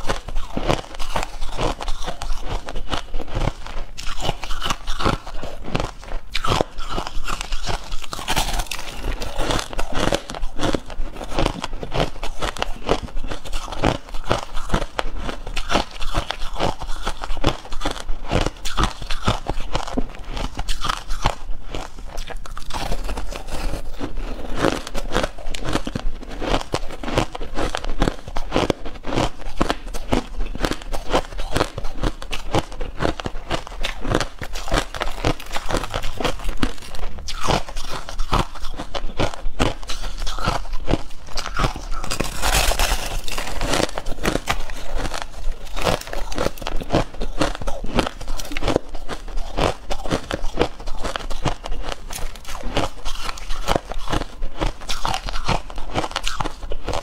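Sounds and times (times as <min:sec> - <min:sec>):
crushed ice crunching: 0:40.9 - 0:51.5.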